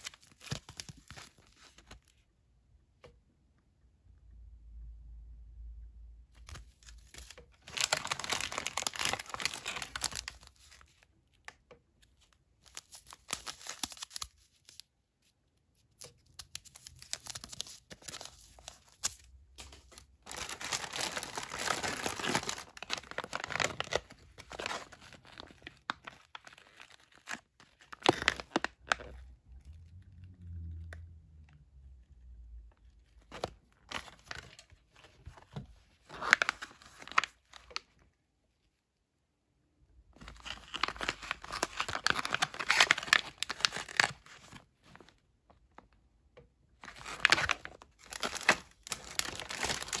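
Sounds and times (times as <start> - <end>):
plastic packaging crinkling and tearing: 0.0 - 2.2, 6.4 - 11.4, 12.2 - 14.9, 15.9 - 30.1, 32.8 - 38.0, 40.2 - 45.2, 46.8 - 50.0.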